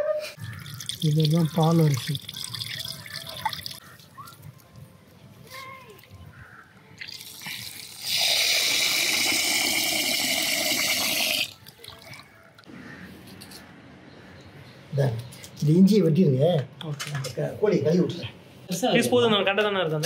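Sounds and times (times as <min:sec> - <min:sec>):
water pouring into vessel: 0:00.4 - 0:03.8.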